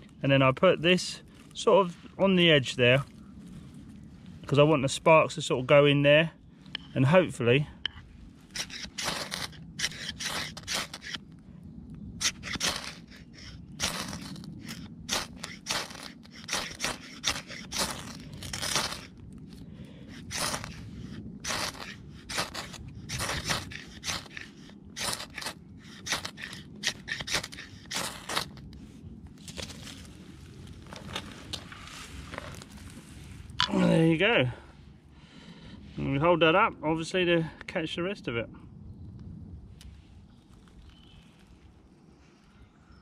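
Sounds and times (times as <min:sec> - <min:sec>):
knife scraping ferrocerium rod: 0:07.8 - 0:11.2, 0:12.2 - 0:19.1, 0:20.1 - 0:28.6.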